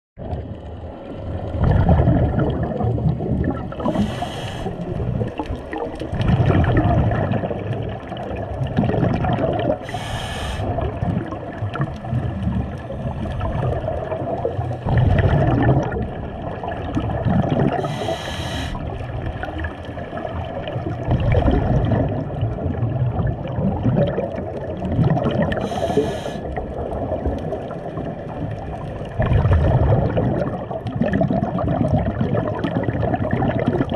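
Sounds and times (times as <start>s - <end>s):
exhaled bubbles gurgling: 0.2s - 33.9s
regulator hiss on inhalation: 3.8s - 4.9s, 9.8s - 10.7s, 17.8s - 18.8s, 25.5s - 26.5s.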